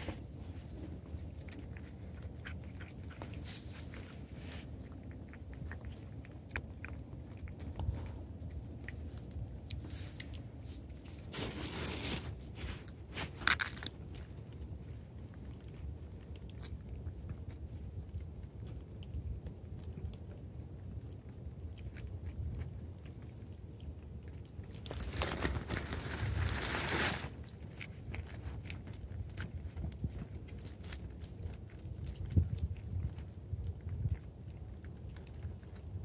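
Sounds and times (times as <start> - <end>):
rustling: 0.0 - 18.0, 24.2 - 33.4
cats licking and chewing: 0.0 - 36.0.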